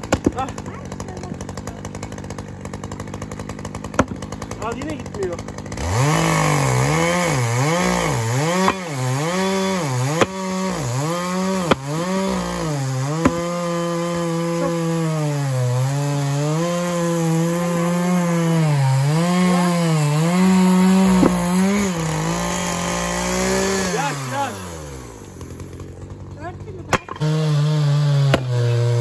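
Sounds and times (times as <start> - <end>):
chainsaw cutting logs: 0.0 - 29.0
sharp knocks: 3.9 - 4.4, 13.1 - 13.6, 21.0 - 21.9.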